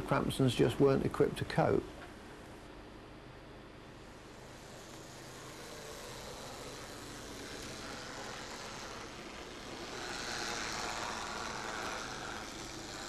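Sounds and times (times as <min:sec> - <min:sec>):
model train motor whirring: 0:04.0 - 0:13.0.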